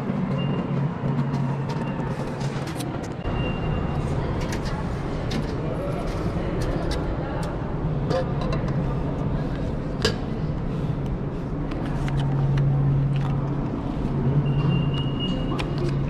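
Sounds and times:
high beep: 3.2 - 4.0.

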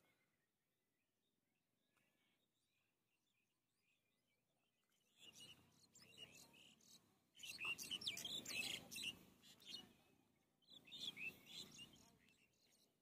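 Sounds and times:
bird chirps: 4.8 - 12.9.

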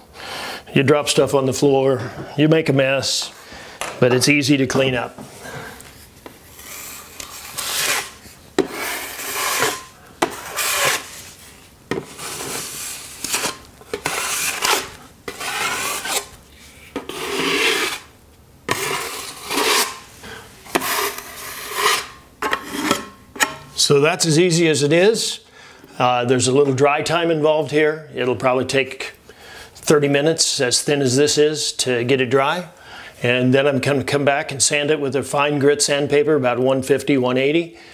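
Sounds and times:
drywall knife scraping wall: 6.4 - 16.3, 16.9 - 18.1, 18.7 - 20.1, 20.7 - 23.2.

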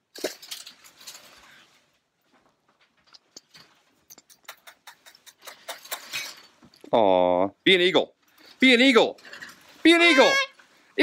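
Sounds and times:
soft rustling: 0.2 - 4.1.

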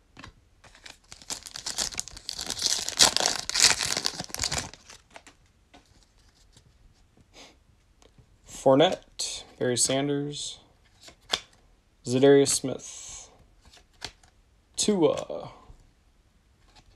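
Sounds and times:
plastic wrapper crinkling: 0.6 - 5.4.

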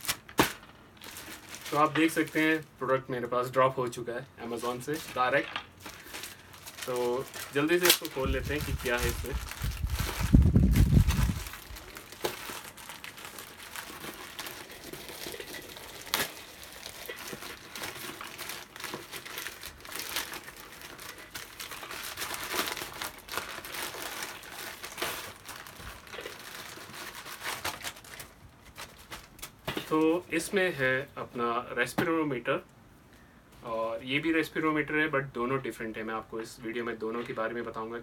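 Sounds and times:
plastic bag crinkling and tearing: 0.0 - 3.6, 4.4 - 30.2.

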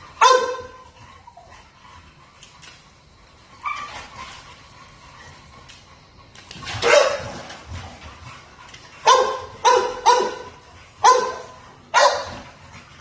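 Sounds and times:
puppy barking: 0.2 - 0.8, 6.8 - 7.4, 9.0 - 12.4.

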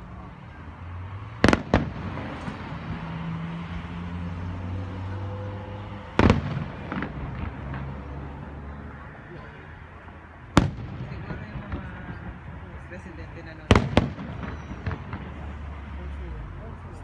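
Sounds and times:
fireworks exploding: 1.3 - 3.2, 5.9 - 8.6, 10.5 - 16.0
small firework pops: 1.4 - 2.6.

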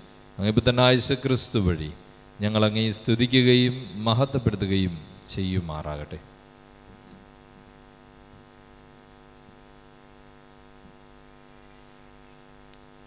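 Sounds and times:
faint mains hum: 0.0 - 13.0
faint tick: 12.7 - 12.9.

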